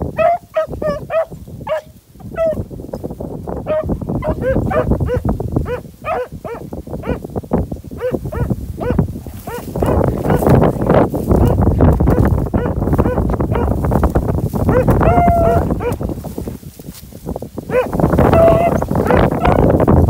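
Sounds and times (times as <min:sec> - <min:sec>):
wind rumble on microphone: 0:00.0 - 0:20.0
hounds baying: 0:00.1 - 0:02.6, 0:03.7 - 0:07.2, 0:08.0 - 0:14.0, 0:14.6 - 0:16.2, 0:17.7 - 0:19.8.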